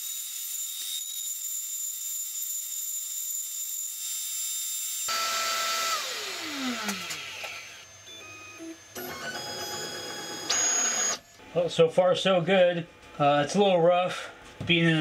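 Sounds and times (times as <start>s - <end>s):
motors spinning down: 5.1s - 11.3s
router spindle whining: 5.1s - 11.4s.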